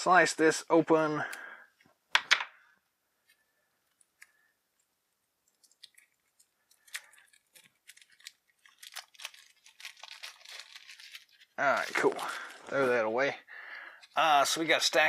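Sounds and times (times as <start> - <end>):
plastic wrap crinkling: 5.4 - 13.1.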